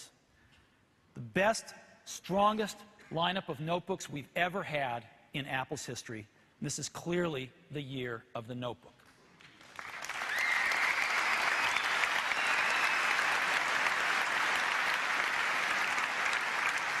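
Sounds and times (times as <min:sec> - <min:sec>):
large audience applauding: 0:09.5 - 0:17.0
high whistle: 0:10.3 - 0:13.4.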